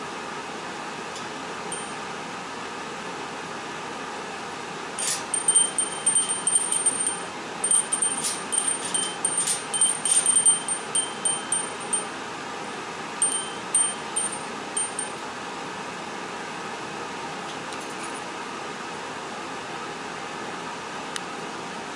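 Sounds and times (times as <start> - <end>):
small metal bells jingling: 1.7 - 1.9, 5.0 - 12.1, 13.2 - 15.1.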